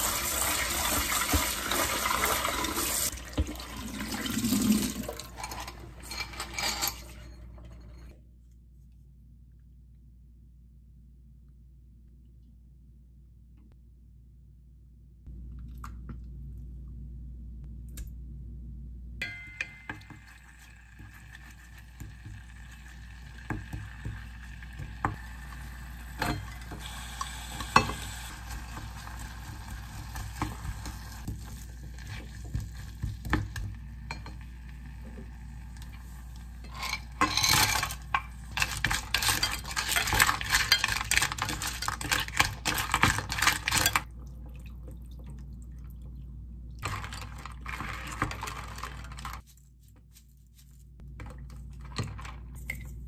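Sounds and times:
light sizzle of frying: 0.0s - 3.9s, 19.5s - 44.4s.

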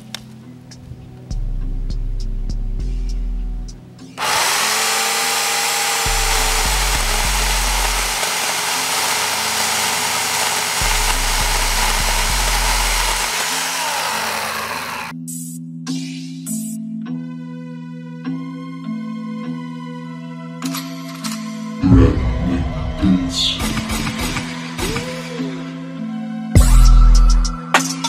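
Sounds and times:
music with bass beat: 1.3s - 3.8s, 26.6s - 28.0s
electric chainsaw cutting wood: 4.2s - 15.1s.

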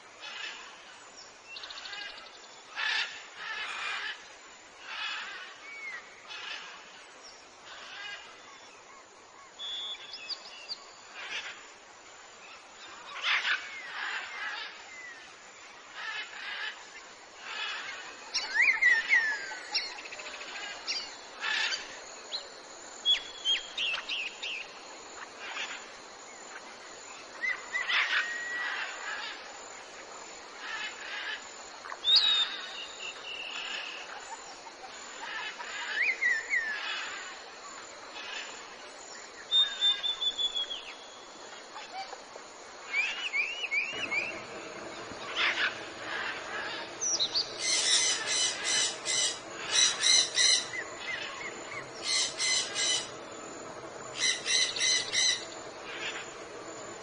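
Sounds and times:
whistled bird notes: 39.4s - 41.3s, 42.9s - 53.3s, 54.0s - 56.5s
birds harsh calls: 42.8s - 57.0s.

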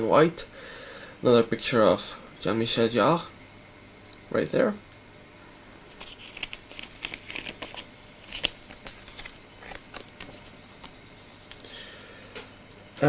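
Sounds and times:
plastic sleeve crinkling: 5.8s - 11.6s.

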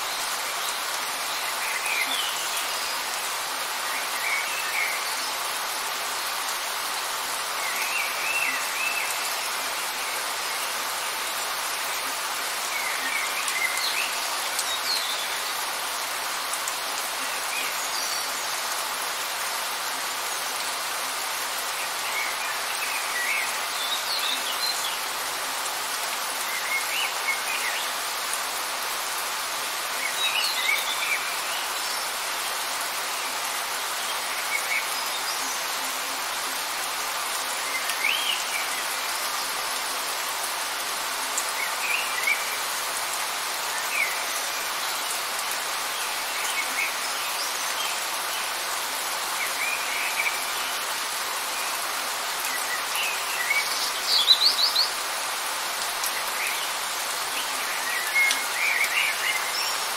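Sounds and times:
light rain hissing: 0.0s - 59.9s.

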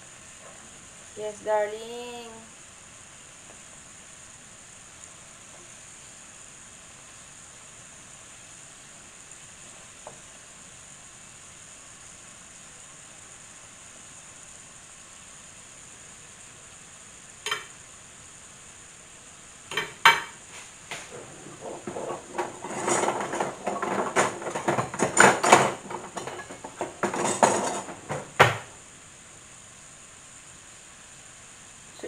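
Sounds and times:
dough sizzling in oil: 0.0s - 32.0s
utensils and dishes clattering: 17.5s - 17.7s, 19.7s - 20.4s, 21.0s - 28.8s.

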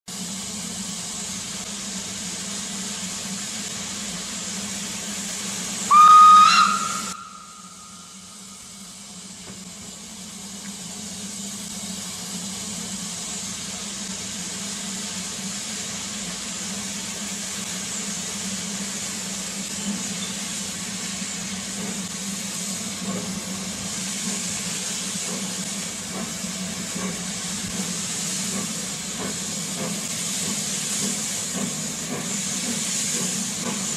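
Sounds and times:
steam hissing: 0.1s - 33.9s
steam whistle: 5.9s - 8.6s.

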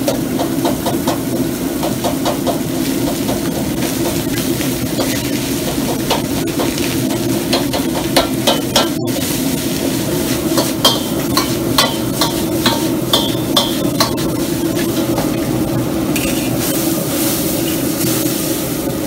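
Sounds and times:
gas burner roaring: 0.0s - 19.0s
metal utensils scraping a wok: 8.3s - 18.6s.

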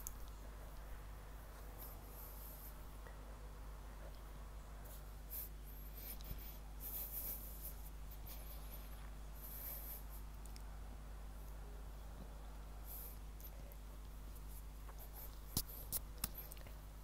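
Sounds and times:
low electrical hum: 0.0s - 17.0s
earphone cable rubbing clothing: 14.4s - 16.5s.

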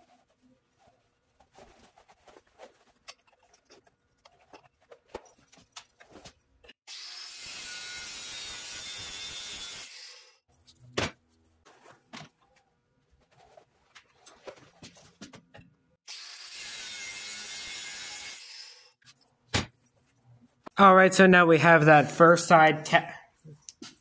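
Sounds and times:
angle grinder cutting steel: 6.9s - 10.4s, 16.1s - 19.0s.

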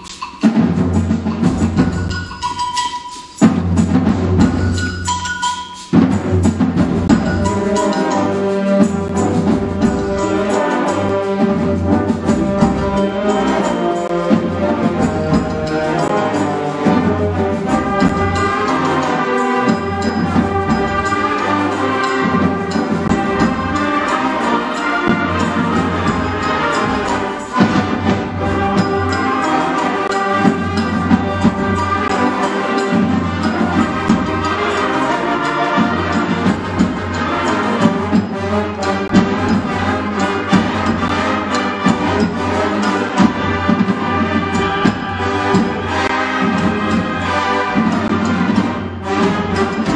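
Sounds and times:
wind band playing mambo: 0.0s - 49.9s.

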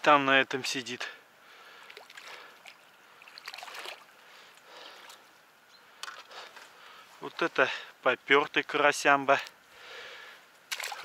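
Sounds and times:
water splashing and sloshing: 1.5s - 5.3s, 6.0s - 6.6s, 10.6s - 11.0s.

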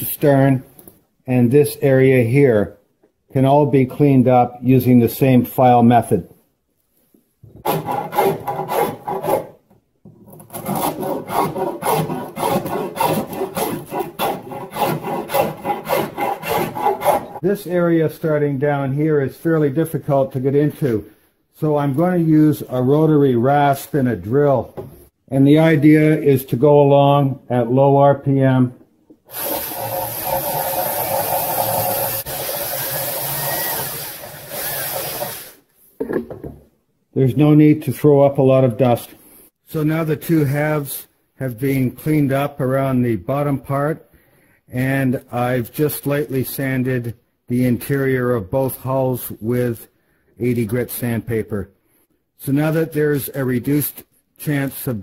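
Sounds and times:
drill grinding with rasp: 7.6s - 9.6s, 10.4s - 17.4s, 29.3s - 35.6s
metal file scraping: 7.6s - 9.6s, 10.3s - 17.4s.

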